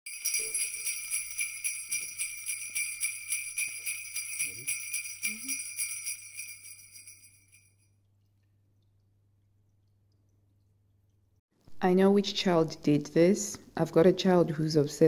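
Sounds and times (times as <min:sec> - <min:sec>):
small bells shaken rhythmically: 0:00.1 - 0:07.7.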